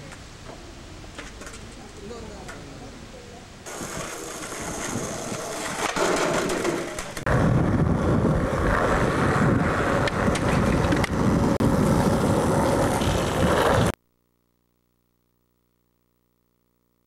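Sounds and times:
skateboard wheels rolling on asphalt: 0.0s - 3.0s, 3.6s - 14.0s
skateboard clicks: 1.1s - 2.7s, 3.7s - 7.3s, 9.7s - 11.6s
wind on microphone: 3.6s - 5.8s, 7.2s - 13.9s.

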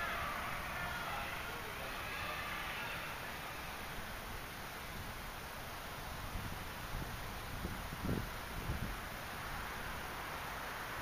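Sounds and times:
outdoor background hiss: 0.0s - 11.0s
wind buffeting microphone: 6.0s - 9.7s.

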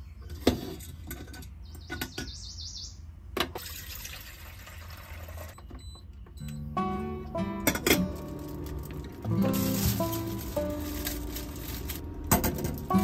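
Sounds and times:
bird chirping: 1.5s - 3.2s
water pouring into kettle: 3.6s - 5.6s.

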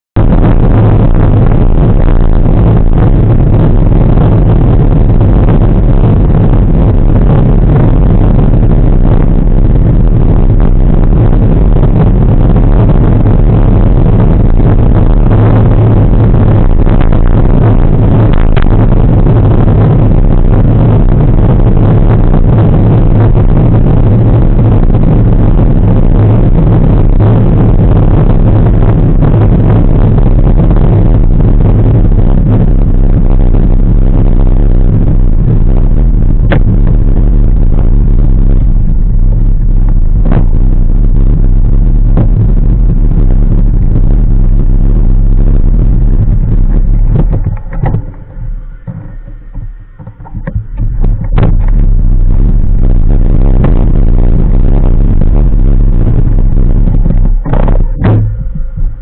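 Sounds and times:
wind buffeting microphone: 0.2s - 59.0s.

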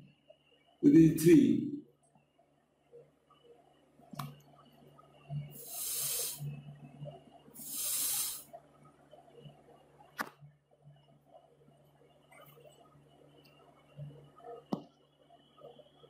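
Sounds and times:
faint steady hum: 0.0s - 16.0s
short hisses: 5.6s - 6.4s, 7.6s - 8.5s.

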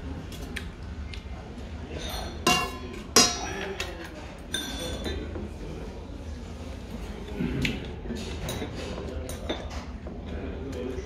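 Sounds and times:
utensil clinking on metal bowl: 2.0s - 5.3s.

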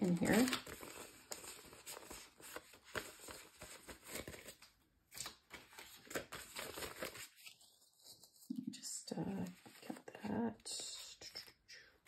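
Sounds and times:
banknote and envelope crinkling: 0.0s - 8.5s.

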